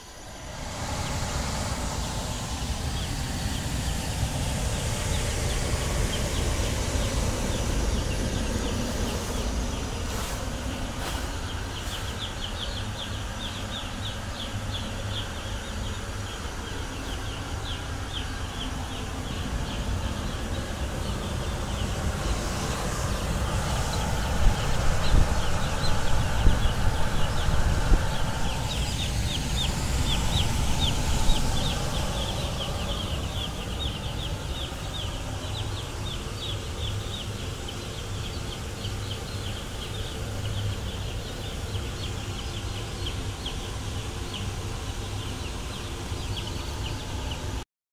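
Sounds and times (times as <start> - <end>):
space heater rumbling: 0.0 - 47.6
chicks peeping: 2.8 - 47.4.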